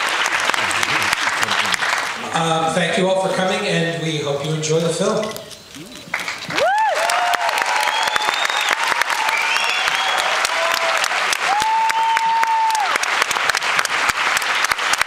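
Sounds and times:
audience clapping: 0.0 - 2.7, 6.1 - 15.0
audience whooping: 6.1 - 13.8.

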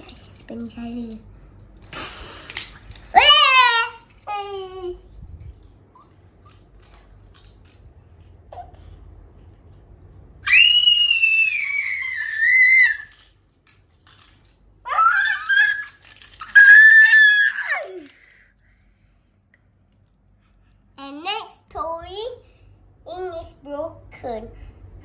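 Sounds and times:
child squealing: 10.5 - 13.1, 14.9 - 18.1.

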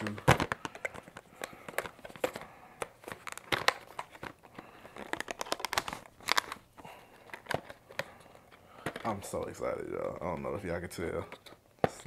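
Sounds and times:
cardboard and plastic crinkling: 0.0 - 12.0.

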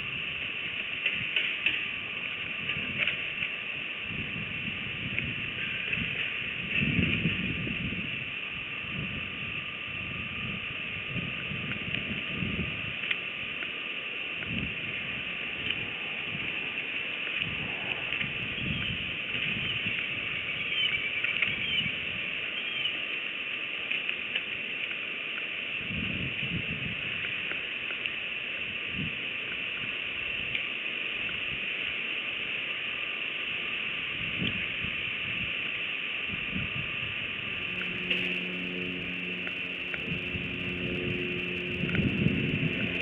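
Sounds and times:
steady high hiss: 0.0 - 25.8, 35.8 - 43.0.

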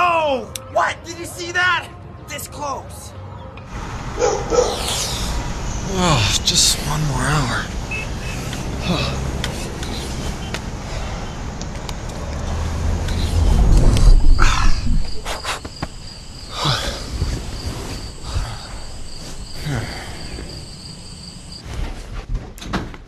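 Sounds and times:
crickets chirping: 3.7 - 21.6
deep whooshing rumble: 12.1 - 15.5
swishing sweeps: 12.4 - 15.8.

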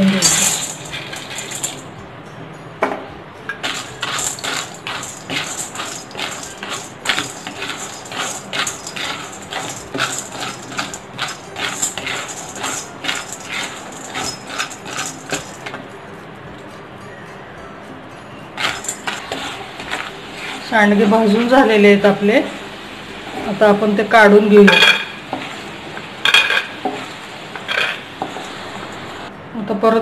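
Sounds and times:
wooden spatula scraping a pan: 18.6 - 21.5.

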